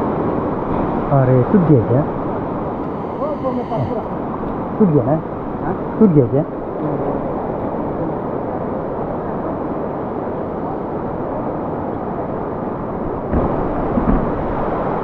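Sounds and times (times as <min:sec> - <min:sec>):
river flowing over stones: 0:02.0 - 0:15.0.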